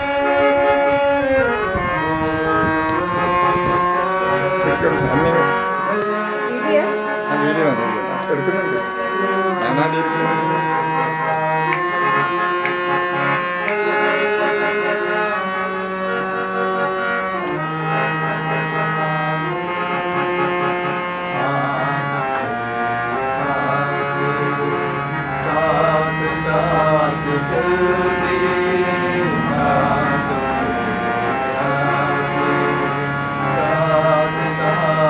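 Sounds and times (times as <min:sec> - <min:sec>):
harmonium melody: 0:00.0 - 0:35.0
low sustained drone note: 0:27.3 - 0:32.8.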